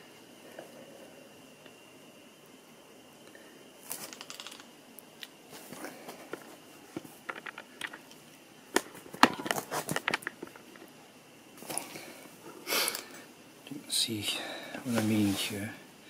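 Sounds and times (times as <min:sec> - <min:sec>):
clicks and knocks of rifle parts: 0:04.0 - 0:10.9.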